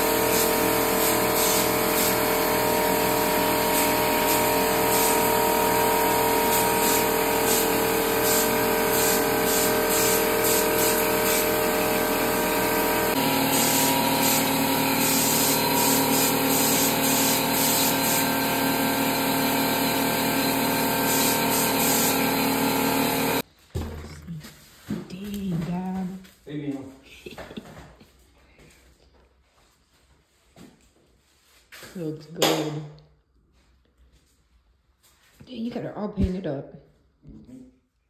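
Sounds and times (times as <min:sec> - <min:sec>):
spray gun air hiss: 0:00.0 - 0:05.6, 0:06.2 - 0:23.4
air compressor running: 0:00.0 - 0:23.4.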